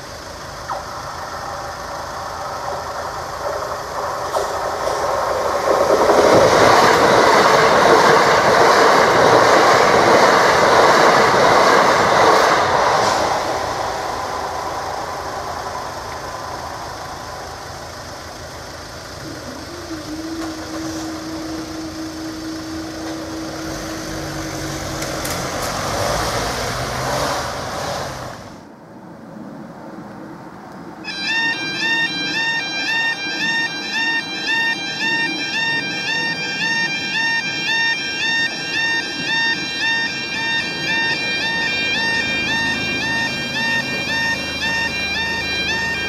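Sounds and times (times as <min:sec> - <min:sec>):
steady hum: 0:00.0 - 0:26.0, 0:31.0 - 0:46.0
electric train passing: 0:00.0 - 0:46.0.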